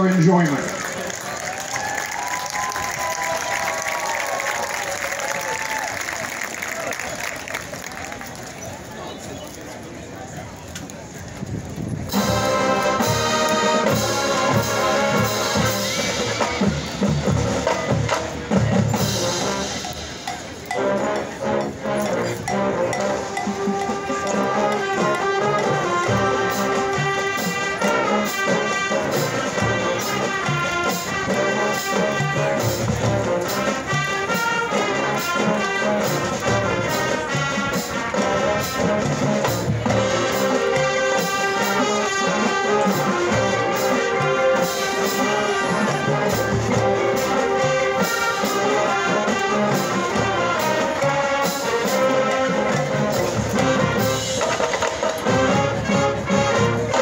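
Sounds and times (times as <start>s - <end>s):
brass playing chords: 12.1s - 54.4s, 55.2s - 57.0s
drum and percussion strikes: 12.1s - 57.0s.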